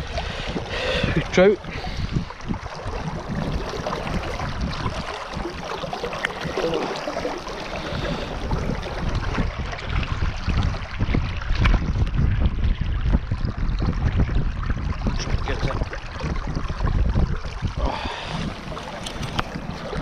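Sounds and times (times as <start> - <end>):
river water rushing and splashing: 0.0 - 11.7, 17.2 - 20.0
wind buffeting microphone: 0.0 - 20.0.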